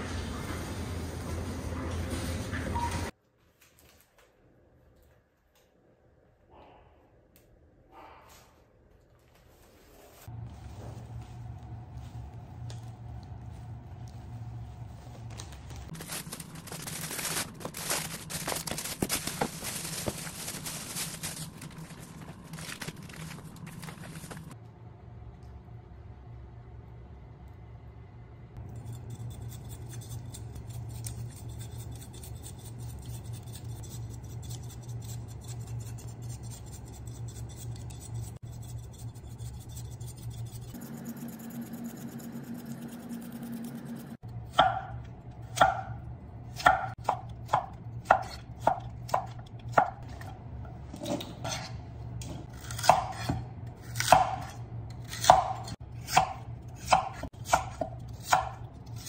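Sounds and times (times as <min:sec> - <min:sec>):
steady low hum: 0:10.3 - 0:59.0
knife chopping on wooden board: 0:54.0 - 0:54.6.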